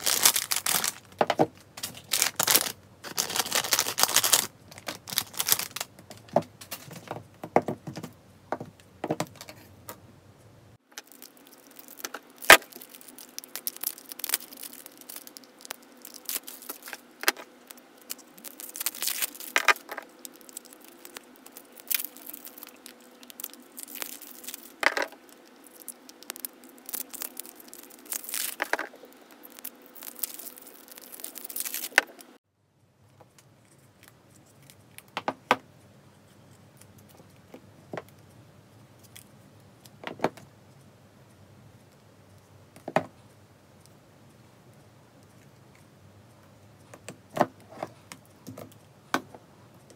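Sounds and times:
plastic bag crinkling: 0.0s - 7.0s, 10.9s - 32.4s.

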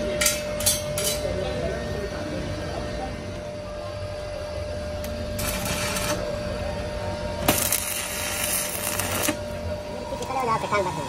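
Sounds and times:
steady hum: 0.0s - 11.0s
welding arc crackling and hissing: 5.0s - 6.7s, 7.4s - 11.0s.

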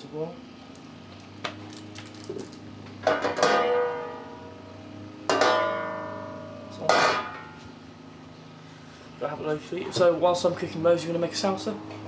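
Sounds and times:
plucked-string chords: 5.3s - 7.5s.

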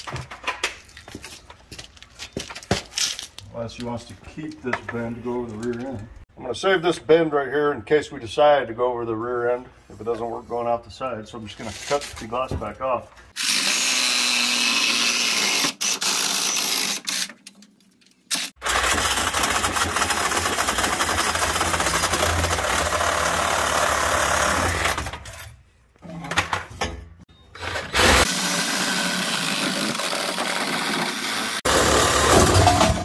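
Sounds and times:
power tool cutting steel pipe: 13.4s - 17.3s, 18.4s - 25.0s, 27.6s - 33.0s.

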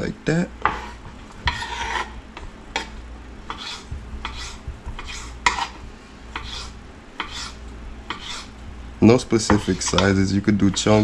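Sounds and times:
knife scraping: 0.6s - 2.2s, 3.5s - 8.6s, 9.4s - 11.0s.

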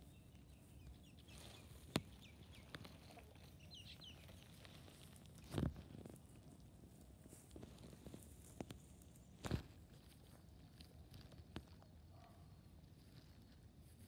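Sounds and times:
faint high bird chirps: 0.0s - 4.7s.

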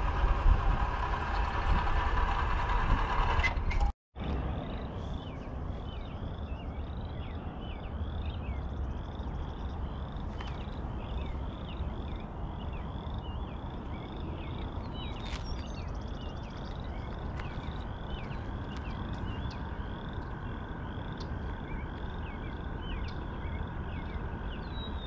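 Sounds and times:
low steady rumble: 0.0s - 25.0s
frogs peeping: 5.8s - 25.0s.

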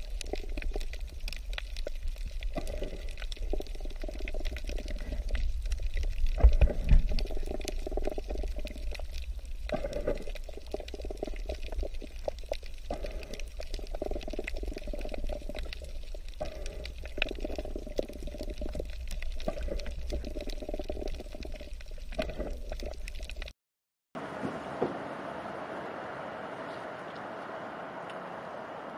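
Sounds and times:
water splashing and gurgling: 0.0s - 23.5s.

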